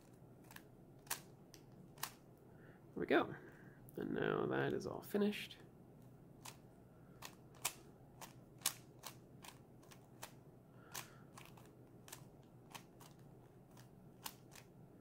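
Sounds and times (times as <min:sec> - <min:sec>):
speed cube clicking: 0:00.0 - 0:02.2, 0:06.4 - 0:06.6, 0:07.2 - 0:14.8.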